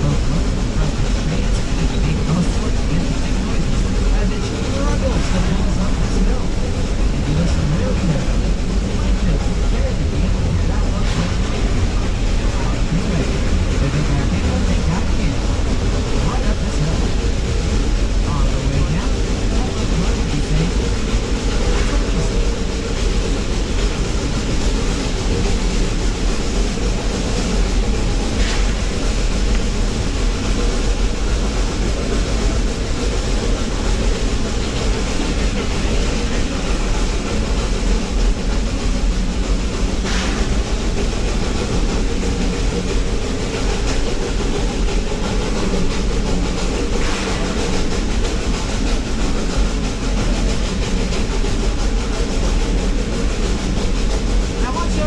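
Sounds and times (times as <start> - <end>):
train rumbling along track: 0.0 - 55.0
faint clicks from rails: 18.8 - 55.0.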